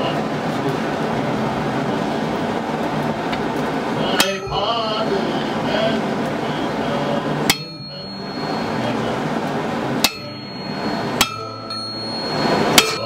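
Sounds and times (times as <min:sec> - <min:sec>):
steady background noise: 0:00.0 - 0:13.0
hammer blow on anvil: 0:07.4 - 0:09.1, 0:10.0 - 0:13.0
metallic ring: 0:07.4 - 0:13.0.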